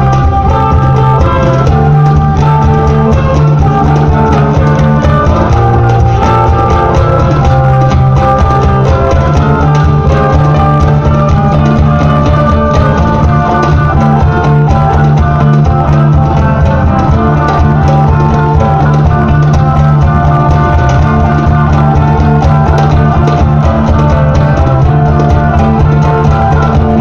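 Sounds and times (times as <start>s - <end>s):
live band music: 0.0s - 27.0s.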